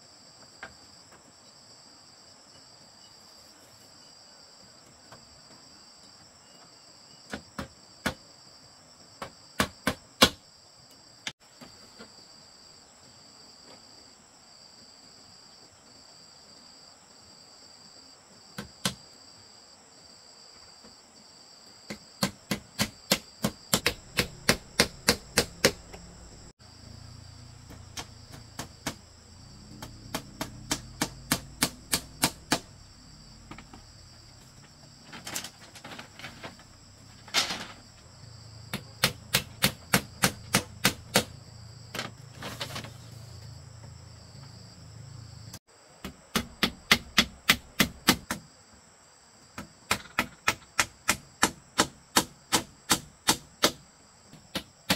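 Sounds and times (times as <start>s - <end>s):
insects droning: 0.0s - 54.9s
hammer striking nails: 9.2s - 10.4s, 21.9s - 26.0s, 27.7s - 29.1s, 29.7s - 32.8s, 38.7s - 41.3s, 46.0s - 48.4s, 49.6s - 53.8s.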